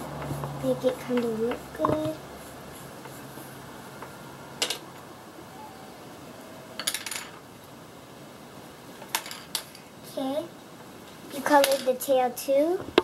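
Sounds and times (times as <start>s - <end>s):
low steady hiss: 0.0s - 13.0s
pencils clicking on table: 0.1s - 2.2s.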